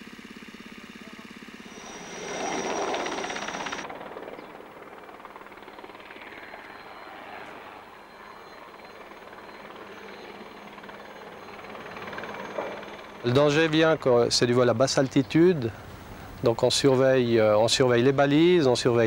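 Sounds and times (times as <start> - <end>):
high turbine whine: 0.0 - 14.5
helicopter rotor and turbine: 0.0 - 16.5.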